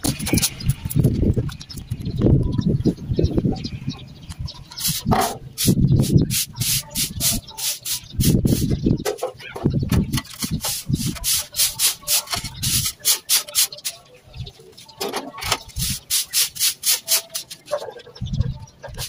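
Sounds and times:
broom sweeping grain on concrete: 0:04.8 - 0:08.7, 0:10.6 - 0:13.8, 0:15.8 - 0:17.6.

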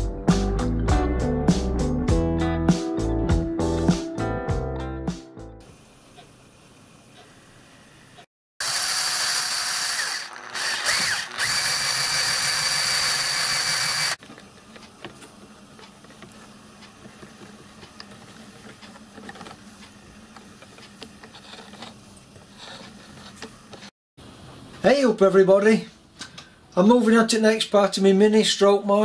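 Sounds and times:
power tool running: 0:08.6 - 0:14.2.

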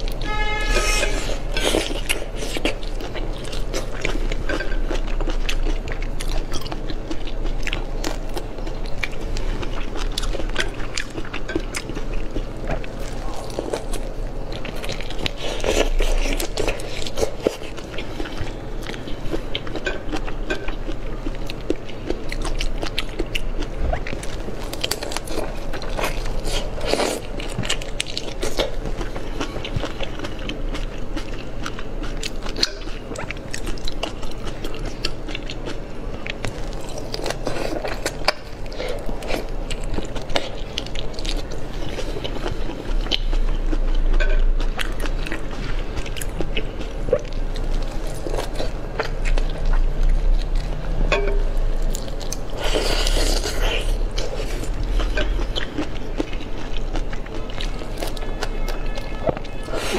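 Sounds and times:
chewing and crunching shrimp shells: 0:00.0 - 0:59.9.

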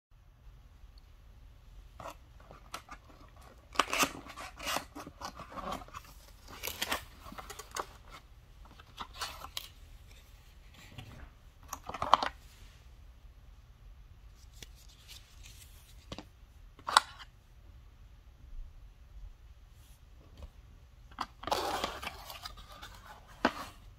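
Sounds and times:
cardboard scraping and rustling: 0:21.4 - 0:23.9.

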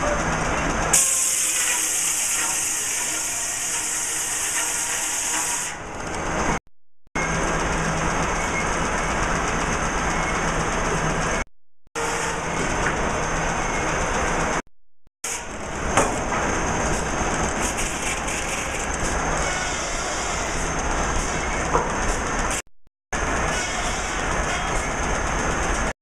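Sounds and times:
sawmill machinery din: 0:00.0 - 0:06.6, 0:07.2 - 0:14.6, 0:15.2 - 0:25.9.

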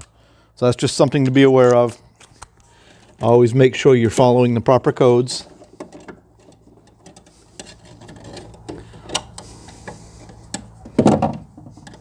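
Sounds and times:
tools clicking and scraping on metal: 0:05.5 - 0:10.8.

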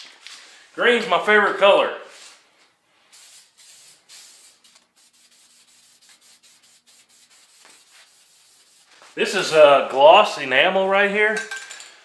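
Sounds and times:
spray paint can hissing: 0:03.1 - 0:08.9.

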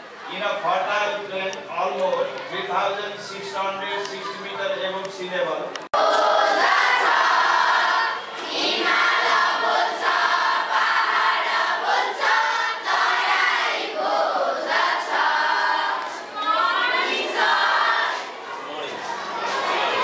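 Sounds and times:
children singing in chorus: 0:06.0 - 0:18.4.

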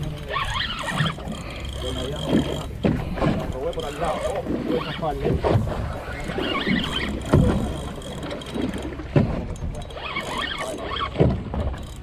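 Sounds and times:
water wash: 0:00.0 - 0:11.9
boat hull slapping waves: 0:00.0 - 0:12.0
wind: 0:00.0 - 0:12.0.

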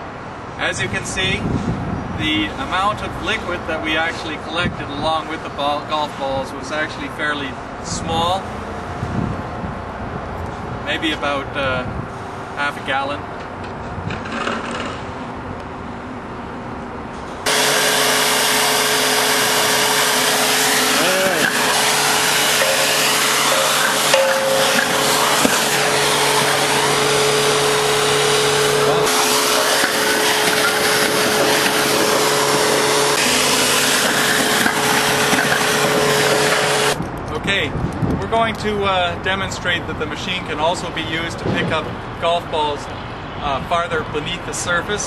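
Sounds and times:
industrial vacuum air rush: 0:17.4 - 0:37.0
steady hum: 0:17.4 - 0:37.0.

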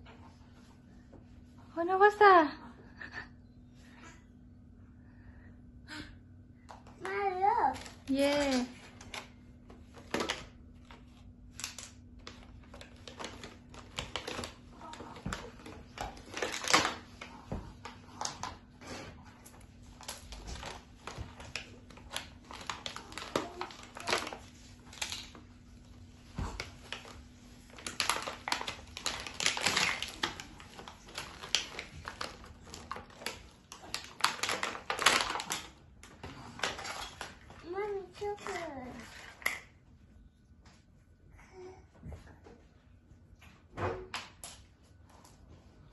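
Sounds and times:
plastic bag crinkling: 0:07.6 - 0:18.7, 0:19.5 - 0:39.7.

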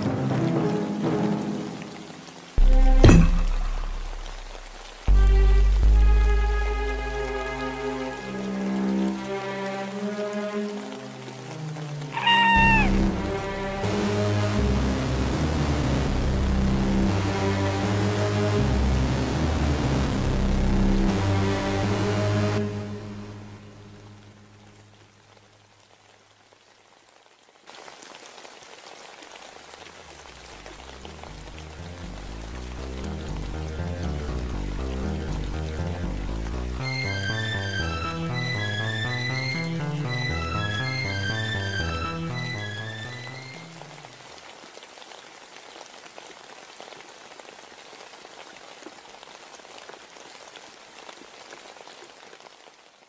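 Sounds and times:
low music notes: 0:00.0 - 0:24.8, 0:30.7 - 0:44.1
crackling hiss of rain: 0:00.0 - 0:53.0.

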